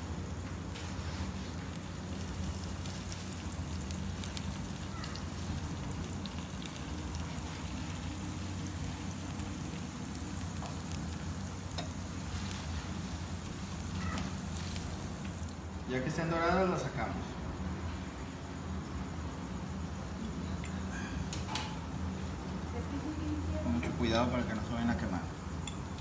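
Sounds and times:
oil sizzling in a frying pan: 0.0 - 15.8.

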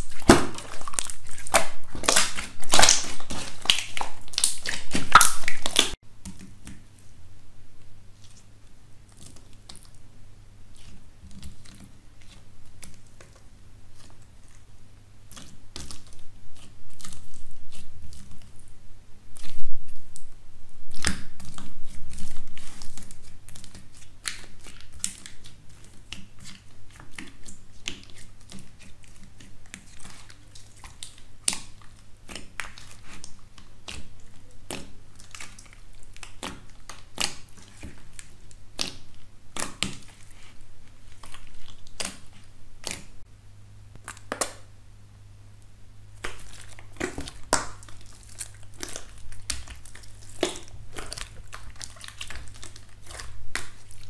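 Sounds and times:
crunchy slime crackling and popping: 0.0 - 6.0, 20.9 - 43.2, 44.0 - 44.7, 46.1 - 54.0
loud crunching of slime: 0.0 - 6.0, 46.1 - 54.0.

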